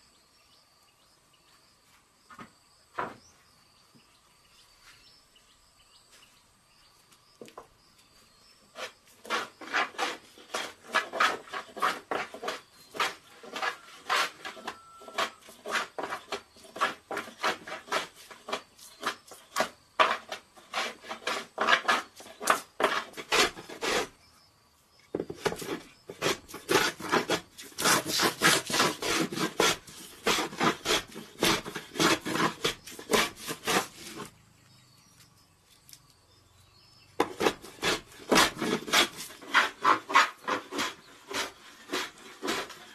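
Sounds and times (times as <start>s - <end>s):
hand plane shaving wood: 8.7s - 24.2s, 25.1s - 34.4s, 37.2s - 42.9s.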